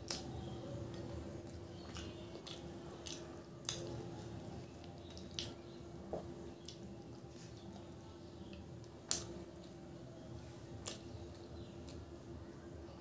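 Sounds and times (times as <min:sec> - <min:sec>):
sharp wet clicking smacks: 0:00.0 - 0:05.7, 0:06.6 - 0:07.7, 0:08.5 - 0:09.8, 0:10.8 - 0:12.0
wet chewing and lip smacks: 0:00.0 - 0:07.9, 0:10.8 - 0:12.1
fingers squishing soft food: 0:00.0 - 0:12.5
faint steady hum: 0:00.0 - 0:13.0.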